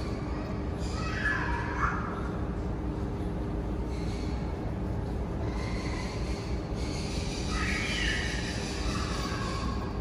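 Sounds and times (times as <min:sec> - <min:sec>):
low rumble of machinery: 0:00.0 - 0:10.0.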